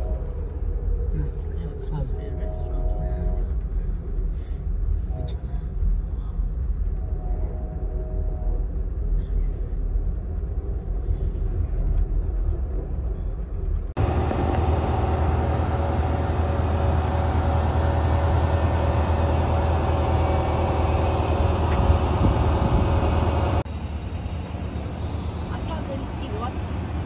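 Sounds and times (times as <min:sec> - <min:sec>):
train rumble and rattle: 0:00.0 - 0:27.0.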